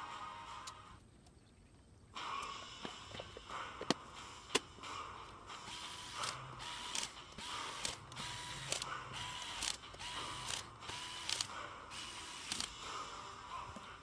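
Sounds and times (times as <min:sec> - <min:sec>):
drill clicks: 0:05.7 - 0:12.7
cordless drill motor whining: 0:05.7 - 0:12.8.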